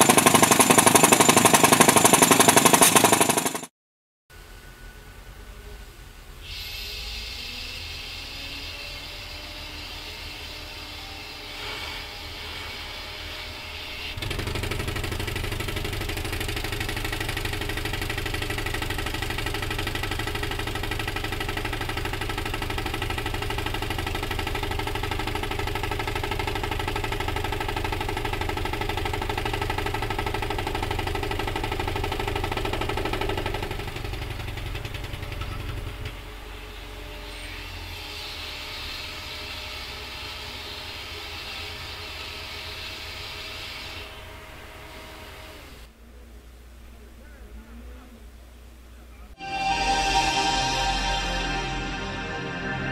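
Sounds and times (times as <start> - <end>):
pneumatic hammer pounding: 0.0 - 3.7, 14.2 - 23.9.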